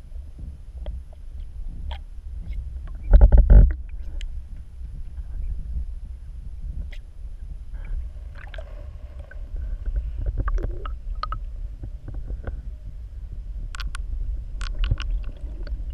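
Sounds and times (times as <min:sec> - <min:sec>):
small underwater clicks and taps: 0:10.2 - 0:11.4, 0:13.7 - 0:14.0, 0:14.6 - 0:15.8.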